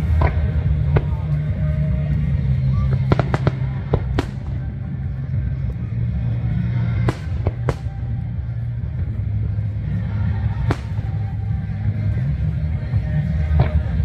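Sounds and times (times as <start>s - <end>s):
low rumble: 0.0s - 14.0s
sharp firework bangs: 3.1s - 4.7s, 7.1s - 8.0s, 10.6s - 11.3s.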